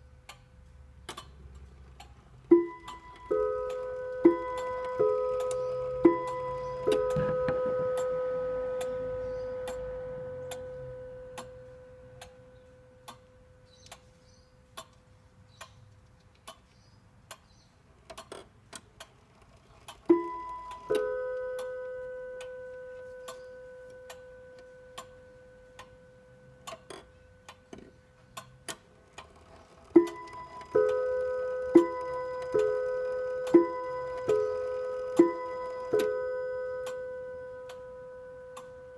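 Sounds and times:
clock mechanism clicks: 1.1 - 14.1, 14.7 - 26.0, 26.6 - 38.9
clock ticking: 1.1 - 14.1, 16.4 - 19.2, 19.8 - 38.9
clock gong ringing: 2.5 - 13.6, 20.1 - 28.2, 29.9 - 38.9.

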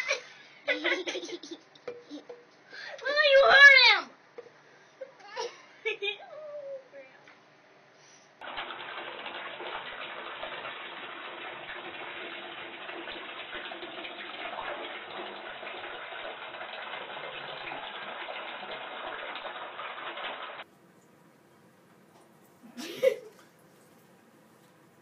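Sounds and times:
bathtub faucet running: 8.4 - 25.0.

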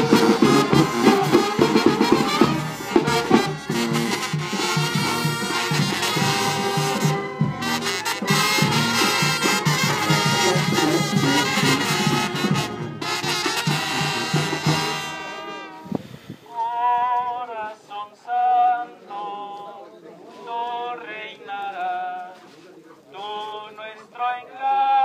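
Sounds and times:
brass band playing: 0.0 - 16.4.

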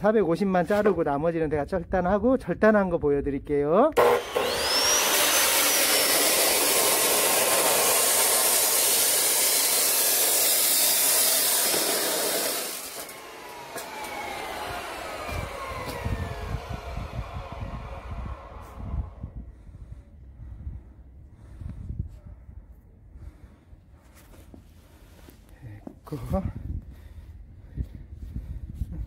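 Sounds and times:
disc grinding through pipe: 4.0 - 19.1
chop saw motor whining: 4.0 - 19.4.

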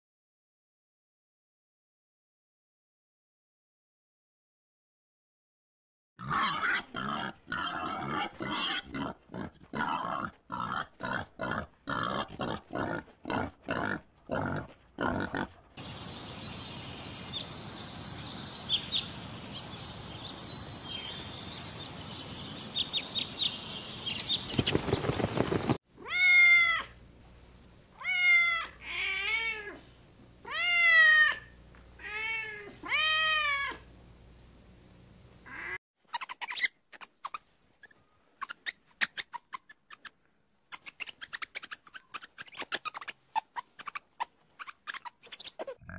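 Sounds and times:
steady hiss: 15.8 - 24.1
cat meowing: 26.0 - 26.9, 28.0 - 29.8, 30.4 - 33.8.

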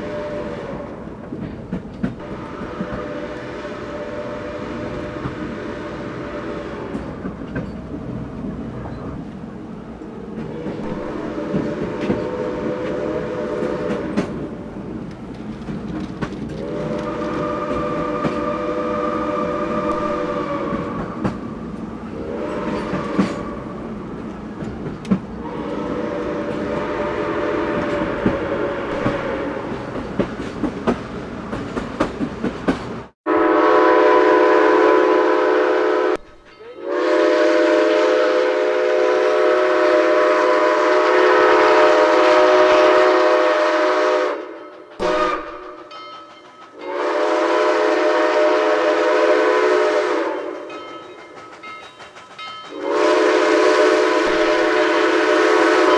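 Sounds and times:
steam whistle blowing: 0.0 - 1.1, 2.2 - 7.2, 10.6 - 14.3, 16.6 - 21.2, 22.1 - 23.8, 25.4 - 29.8, 33.3 - 45.9, 46.8 - 50.7, 52.7 - 55.9
train wheels clattering: 1.1 - 3.3, 6.8 - 9.3, 10.3 - 33.1, 44.5 - 47.8, 50.0 - 55.0.

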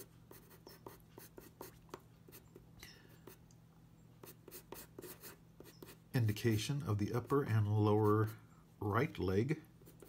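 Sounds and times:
pencil scratching on paper: 0.0 - 2.6, 4.2 - 6.6, 7.2 - 8.4, 9.8 - 10.0.

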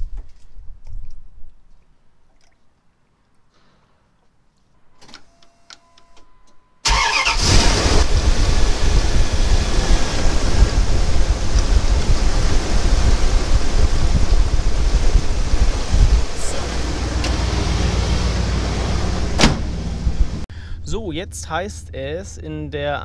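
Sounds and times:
car engine running: 7.4 - 20.5.

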